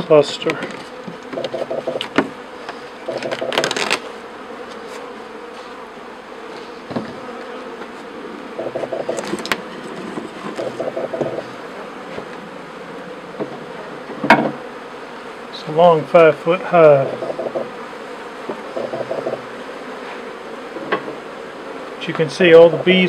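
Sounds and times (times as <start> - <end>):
honeybees buzzing: 0.0 - 23.0
sharp wooden knocks: 1.3 - 2.3, 3.1 - 3.9, 8.6 - 11.4, 18.8 - 19.4.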